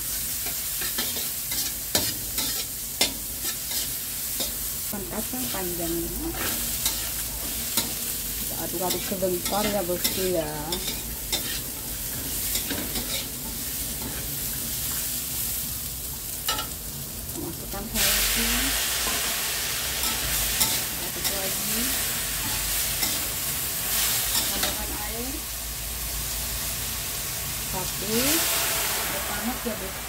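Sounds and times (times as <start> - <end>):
spatula scraping a wok: 0.0 - 15.4, 18.0 - 25.0
beans sizzling in hot oil: 0.0 - 30.0.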